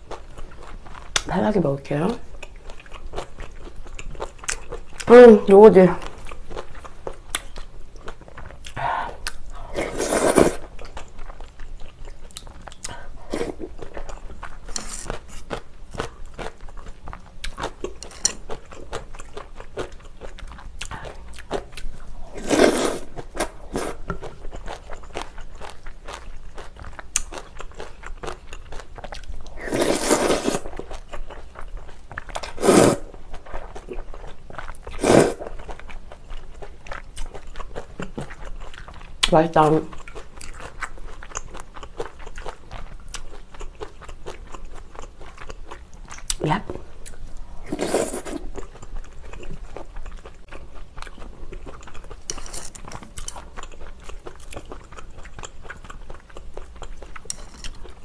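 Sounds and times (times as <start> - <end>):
wet chewing: 2.3 - 58.0
loud noodle slurps: 9.7 - 10.7, 22.3 - 24.1, 29.6 - 30.7, 32.4 - 33.1, 34.9 - 35.5, 47.6 - 48.5.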